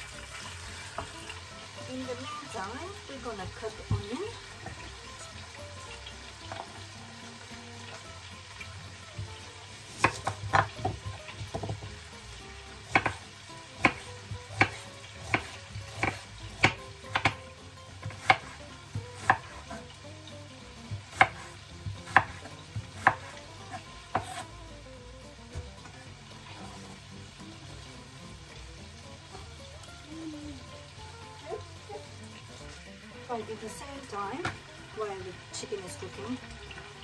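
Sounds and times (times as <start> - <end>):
knife hitting cutting board: 12.9 - 13.2.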